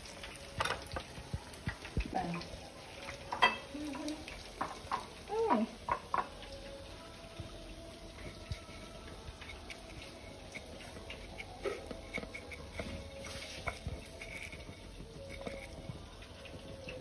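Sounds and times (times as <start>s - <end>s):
hands patting meat in breadcrumbs: 8.3s - 17.0s.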